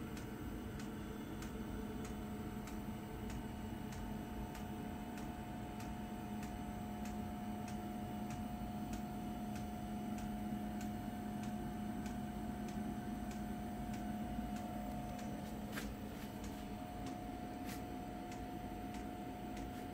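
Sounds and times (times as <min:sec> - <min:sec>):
power unit electrical hum: 0:00.0 - 0:19.9
faint even ticking: 0:00.1 - 0:19.9.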